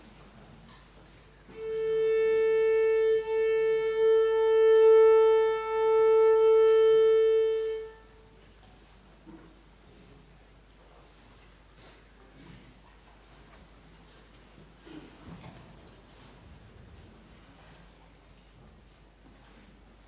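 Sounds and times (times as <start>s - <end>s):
long steady tuning note: 1.4s - 8.6s.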